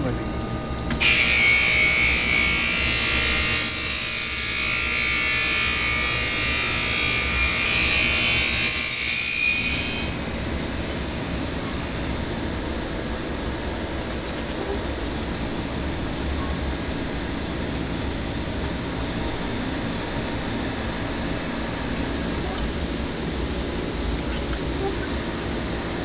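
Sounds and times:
faint steady whine: 0.0s - 26.0s
high-pitched buzzing hiss: 1.0s - 10.4s.

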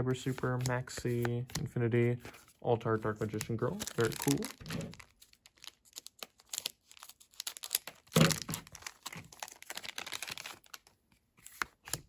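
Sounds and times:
foil wrapper crinkling: 3.4s - 10.9s.

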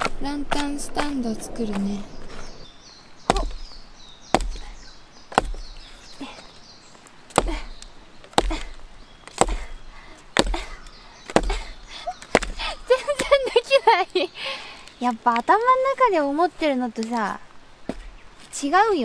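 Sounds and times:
axe chopping wood: 3.3s - 3.7s, 4.3s - 4.7s, 5.3s - 5.7s, 7.3s - 9.8s, 10.4s - 12.6s.

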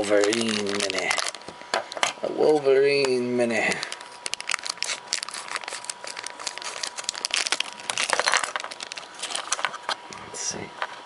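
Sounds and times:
plastic bag crinkling: 0.0s - 1.5s, 3.5s - 10.0s.

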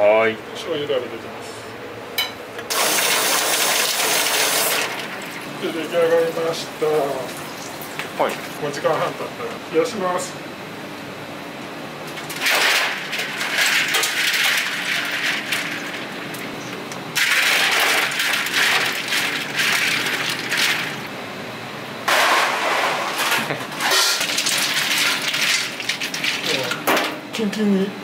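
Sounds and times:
ice cubes clattering into a bowl: 12.3s - 16.1s, 17.2s - 21.0s, 23.8s - 27.1s
plastic bags crinkling: 17.2s - 21.0s, 23.9s - 26.8s
water splashing in a metal sink: 17.2s - 21.1s, 23.9s - 27.1s.

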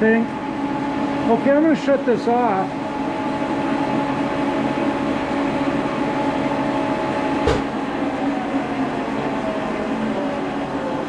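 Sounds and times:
milling machine motor humming: 0.0s - 11.0s
machine switch-off clunk: 7.4s - 7.8s.

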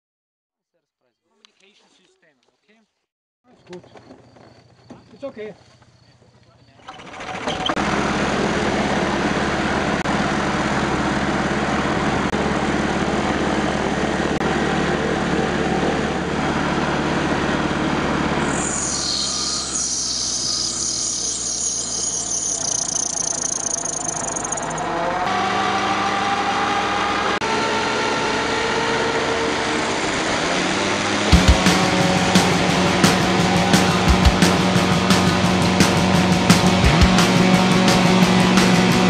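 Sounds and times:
gyrocopter engine running: 6.8s - 39.0s
high hiss: 18.5s - 24.4s.

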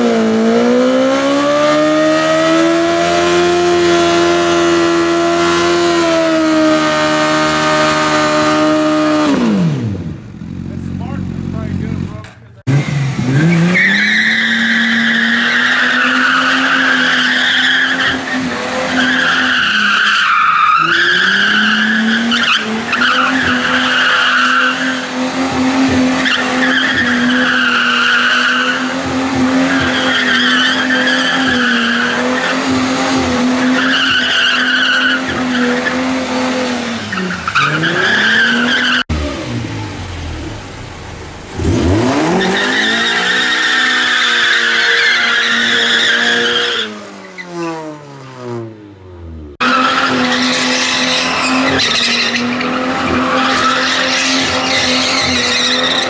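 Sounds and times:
car engine at high revs: 0.0s - 56.0s
tyres squealing: 13.5s - 39.1s, 41.6s - 47.5s, 49.6s - 56.0s.

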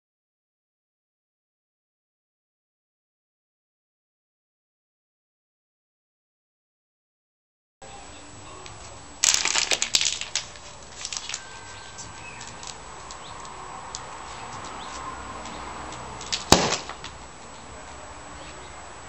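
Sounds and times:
sharp plastic crack: 9.2s - 11.4s, 12.4s - 14.1s, 15.9s - 17.2s
plastic bottle crackling: 9.2s - 14.9s.

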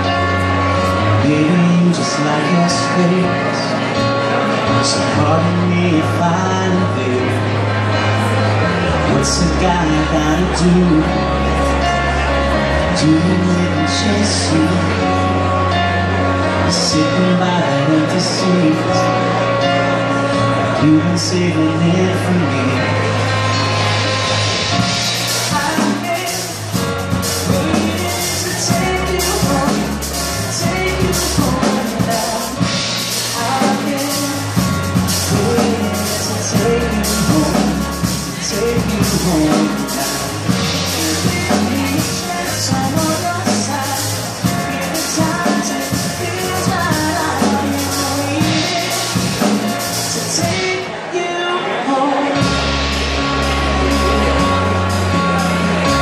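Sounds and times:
deep bass notes: 0.0s - 56.0s
keyboard chords: 0.0s - 56.0s
drum kit and cymbals: 23.2s - 51.0s, 52.3s - 56.0s.

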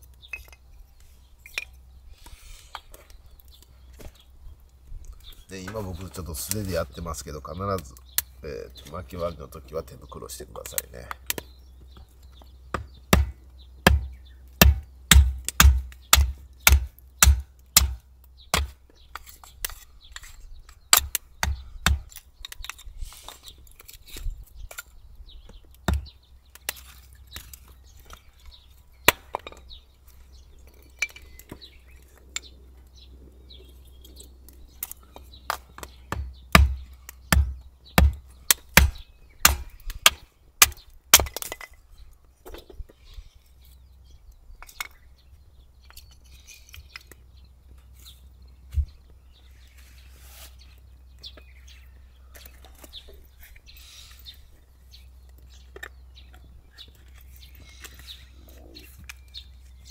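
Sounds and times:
hatchet chopping wood: 12.7s - 19.8s, 20.8s - 22.8s, 25.8s - 27.6s, 29.0s - 29.6s, 35.5s - 41.7s.

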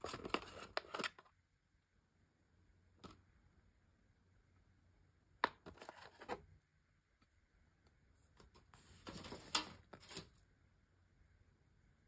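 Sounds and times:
plastic rustling: 8.5s - 10.4s.

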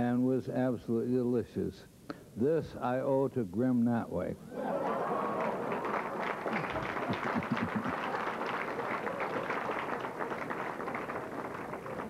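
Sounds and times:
audience laughing: 4.6s - 9.3s
audience applauding: 4.7s - 12.0s.

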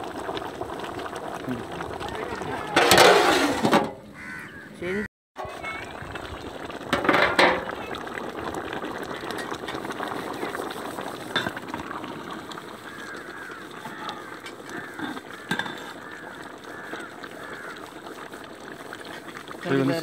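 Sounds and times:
gravy boiling in pot: 0.0s - 4.6s, 5.4s - 20.0s
ladle stirring pot: 1.6s - 4.0s, 5.4s - 8.2s, 12.8s - 19.7s.

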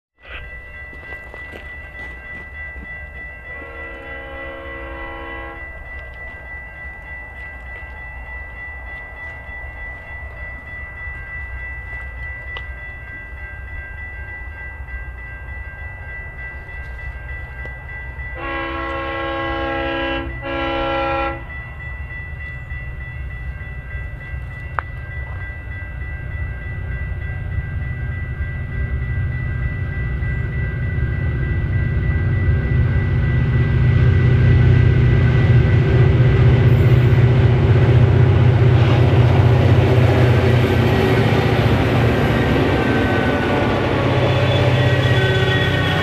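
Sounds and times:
train approaching: 0.2s - 46.0s
diesel locomotive horn: 3.5s - 5.8s, 18.4s - 21.6s, 35.8s - 46.0s
diesel engines rumbling: 31.1s - 46.0s.

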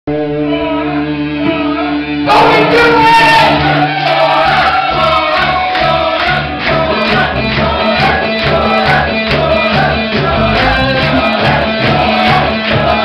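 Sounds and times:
rock band playing: 0.2s - 13.0s.

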